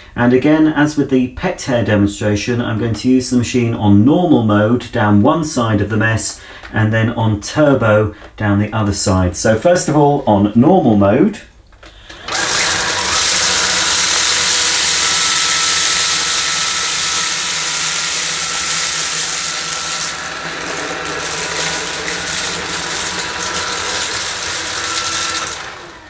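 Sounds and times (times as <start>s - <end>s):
stick vacuum whirring: 11.8s - 26.0s
dry grains rattling in vacuum: 12.3s - 26.0s.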